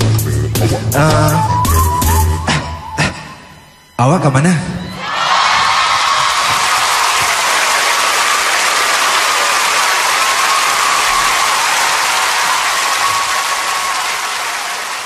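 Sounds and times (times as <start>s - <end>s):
concert audience applauding and cheering: 4.9s - 15.0s.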